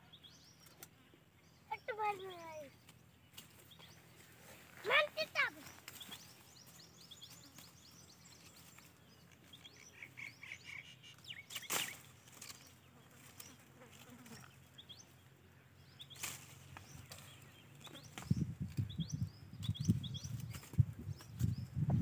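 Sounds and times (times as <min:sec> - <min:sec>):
birds chirping: 0:00.0 - 0:22.0
sharp noises: 0:04.8 - 0:06.5.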